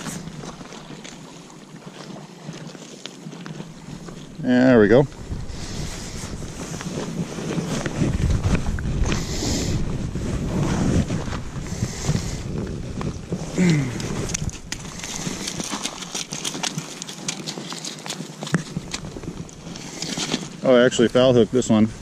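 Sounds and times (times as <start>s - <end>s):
boots crunching on gravel: 0.0s - 21.3s
wind buffeting microphone: 3.7s - 16.6s.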